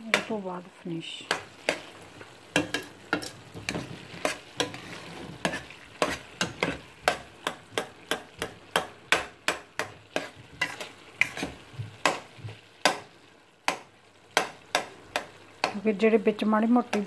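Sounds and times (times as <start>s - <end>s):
low sizzle: 0.0s - 17.0s
spatula scraping steel pot: 2.6s - 8.3s, 9.8s - 12.2s.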